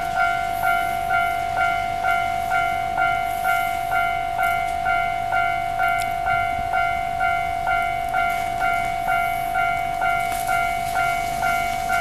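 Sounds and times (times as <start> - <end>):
level crossing bell ringing: 0.0 - 12.0.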